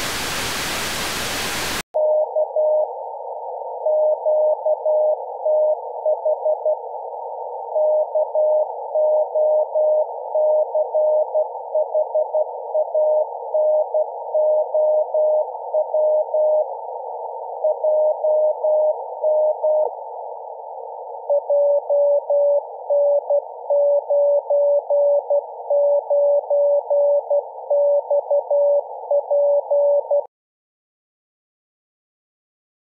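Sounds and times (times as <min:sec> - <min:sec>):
receiver hiss: 0:00.0 - 0:01.8.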